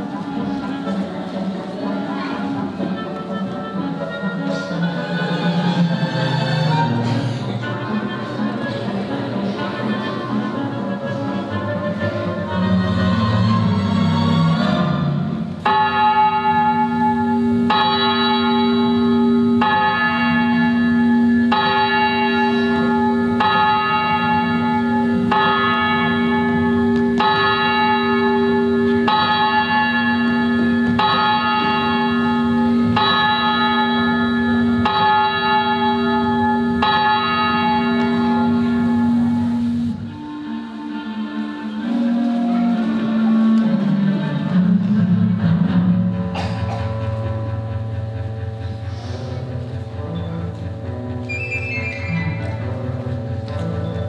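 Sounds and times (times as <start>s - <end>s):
deep clock bell striking: 14.8s - 40.1s, 44.7s - 51.2s.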